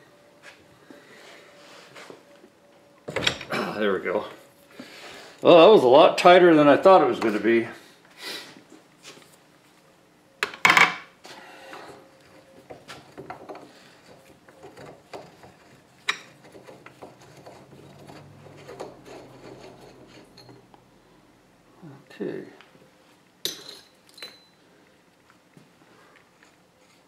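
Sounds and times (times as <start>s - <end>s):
metal-on-metal rubbing: 11.8s - 20.7s.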